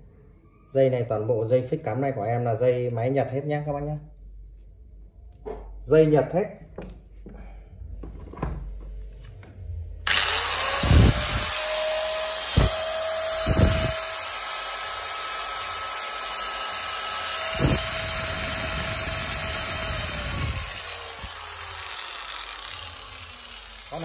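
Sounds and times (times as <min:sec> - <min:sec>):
angle grinder whining: 0:10.0 - 0:24.0.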